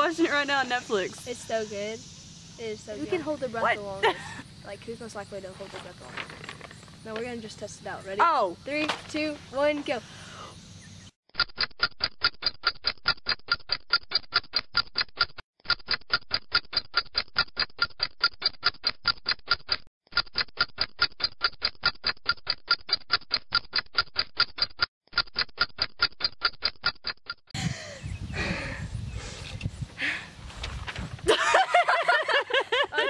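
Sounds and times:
clock timer ticking: 11.4 - 27.4.

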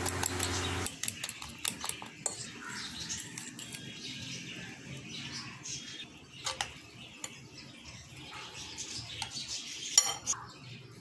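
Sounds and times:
spoon beating egg mixture: 0.0 - 2.5
spoon clinking against bowl: 10.0 - 10.4.

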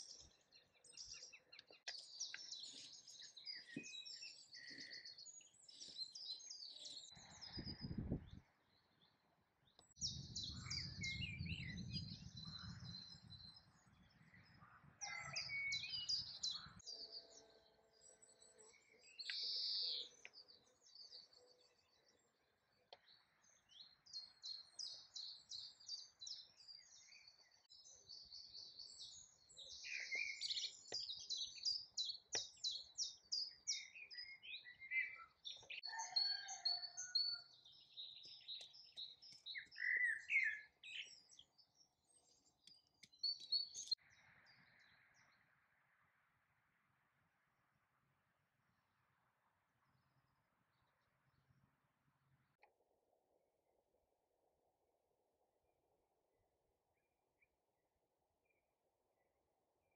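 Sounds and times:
songbirds chirping and trilling: 0.0 - 53.4.

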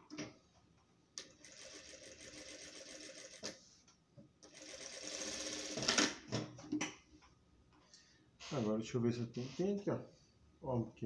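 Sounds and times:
sewing machine stitching: 4.5 - 6.2.

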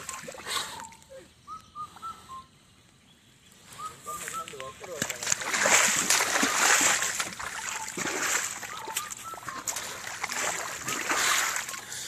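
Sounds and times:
mud and water splashing: 0.0 - 1.2, 3.9 - 12.0.

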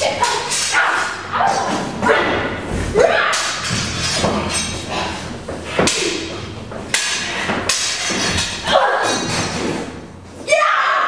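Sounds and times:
sword blades clashing: 0.0 - 5.0, 5.8 - 9.9
feet thudding on wooden stage: 1.8 - 3.1.

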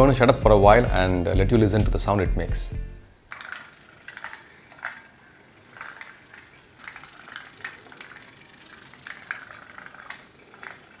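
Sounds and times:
toy boat steam engine popping: 3.3 - 11.0.

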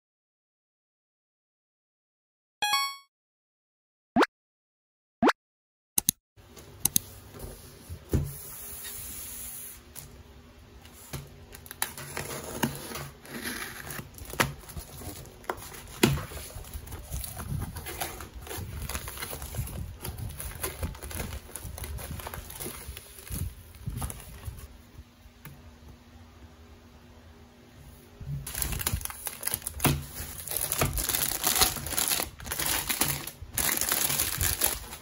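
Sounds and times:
bubble wrap crinkling: 13.3 - 24.7, 28.4 - 35.0.

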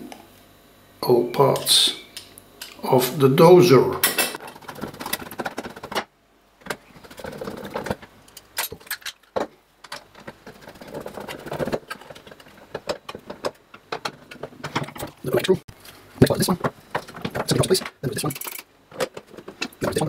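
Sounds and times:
metal parts clinking and knocking: 6.6 - 15.2, 17.0 - 19.6.

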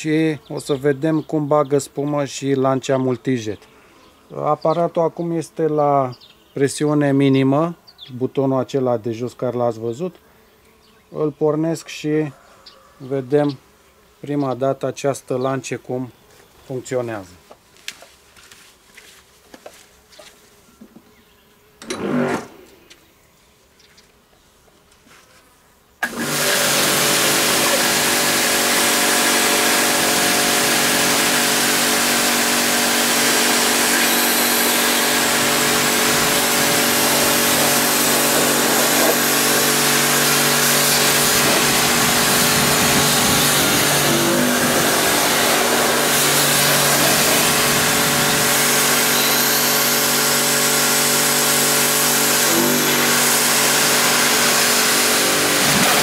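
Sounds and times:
pressure washer motor humming: 26.0 - 56.0
water spraying hiss: 34.0 - 56.0.

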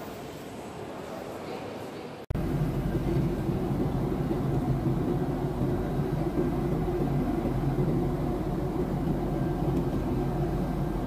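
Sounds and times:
airliner cabin engine rumble: 2.3 - 11.0.

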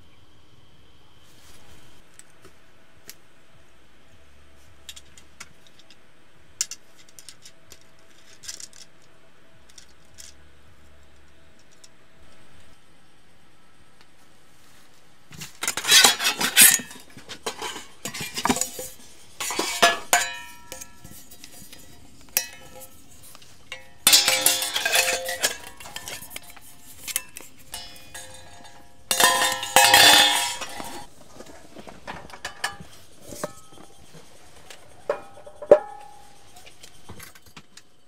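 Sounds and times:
metal gear clattering and clinking: 15.6 - 31.1.

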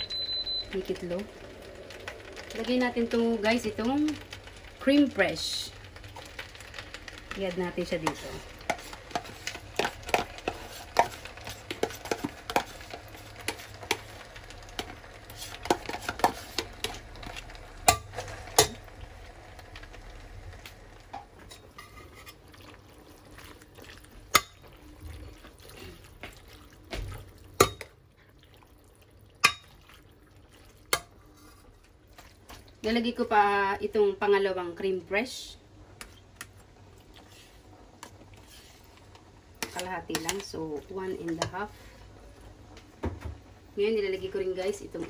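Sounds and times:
metal spoon stirring pasta: 1.7 - 19.0, 21.3 - 32.8, 36.0 - 42.0.

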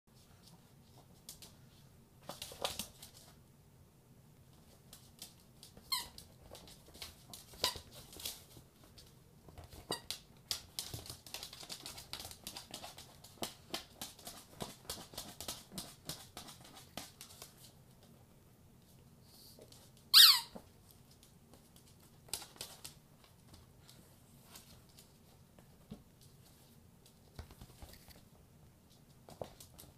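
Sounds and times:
squeaky ball toy squeaking: 20.1 - 20.6.

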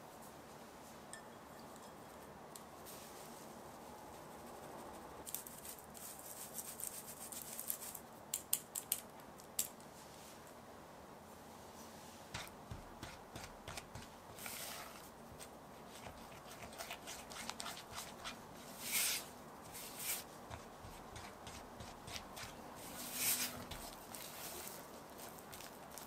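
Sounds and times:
spatula swishing through powder: 12.4 - 25.4.

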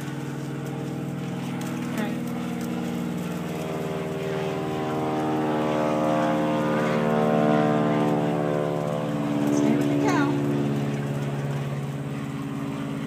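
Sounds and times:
engine drone: 0.0 - 13.0.

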